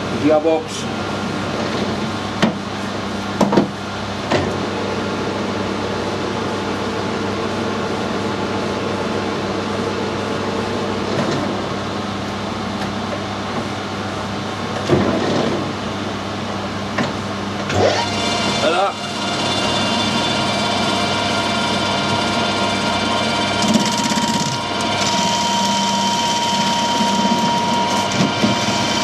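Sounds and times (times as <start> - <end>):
lathe gearbox humming: 17.6 - 29.0.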